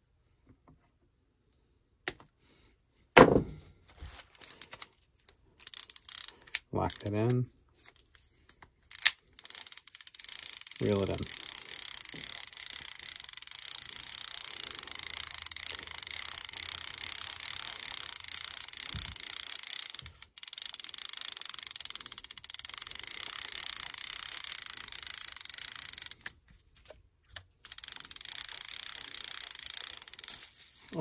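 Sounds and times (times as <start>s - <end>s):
fishing reel cranking clicks: 4.3s - 4.9s, 5.6s - 7.5s, 8.5s - 26.4s, 27.6s - 31.0s.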